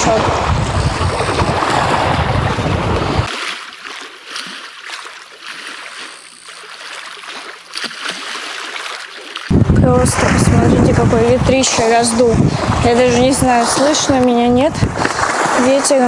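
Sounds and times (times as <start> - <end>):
wind buffeting microphone: 0.0 - 3.3, 9.4 - 16.0
water lapping against boat: 0.0 - 16.0.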